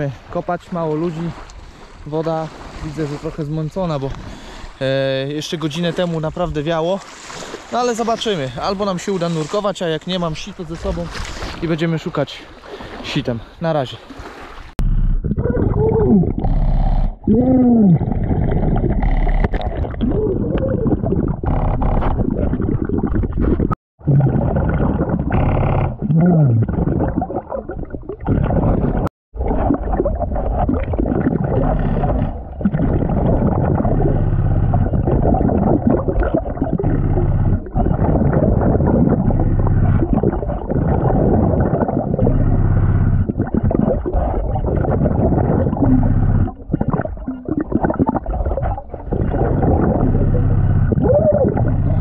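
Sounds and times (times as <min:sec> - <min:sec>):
air gurgling and bubbles: 0:00.0 - 0:52.0
diver breathing underwater: 0:04.2 - 0:04.8.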